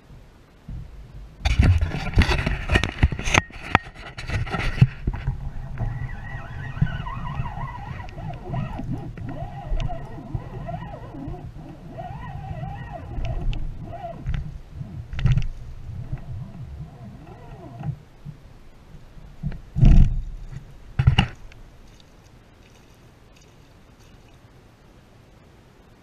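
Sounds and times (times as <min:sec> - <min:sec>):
wind on microphone: 0:00.0 - 0:21.6
faint wavering tones: 0:05.1 - 0:21.0.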